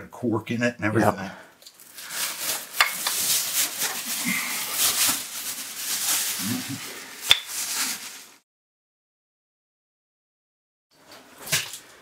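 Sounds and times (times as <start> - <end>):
rustling and scraping movement: 1.8 - 8.4.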